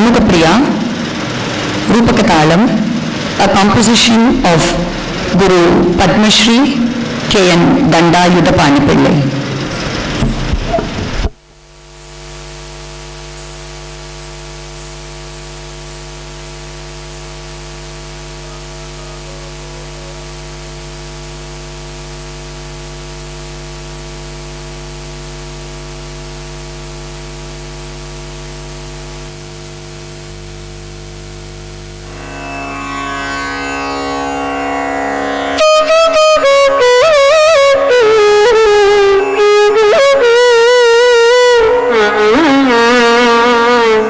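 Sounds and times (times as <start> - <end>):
mains hum and buzz: 0.0 - 44.0
electrical hiss: 9.4 - 34.8.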